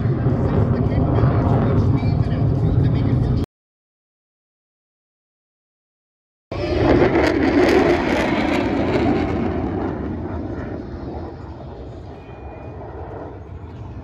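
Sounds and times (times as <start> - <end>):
fighter jet passing overhead: 0.0 - 3.4, 6.5 - 14.0.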